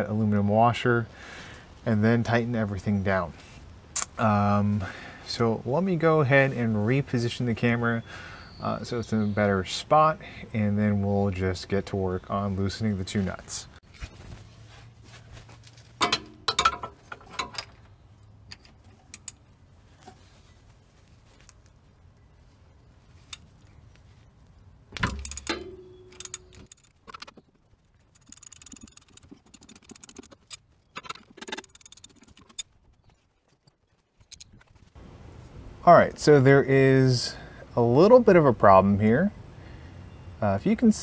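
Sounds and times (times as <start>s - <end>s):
metal hand tools clinking: 16.0s - 17.9s, 25.0s - 27.2s.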